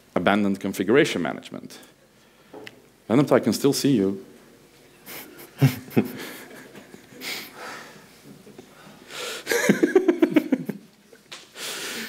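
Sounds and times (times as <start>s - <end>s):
man laughing: 5.1s - 7.5s, 9.5s - 10.8s.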